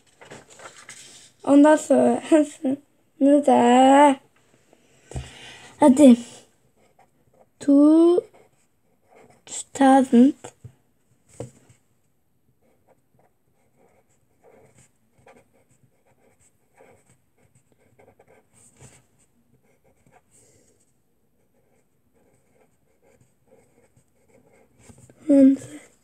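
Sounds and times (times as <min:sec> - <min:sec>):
pen scratching on paper: 0:08.2 - 0:09.6, 0:12.6 - 0:20.4, 0:21.4 - 0:25.8.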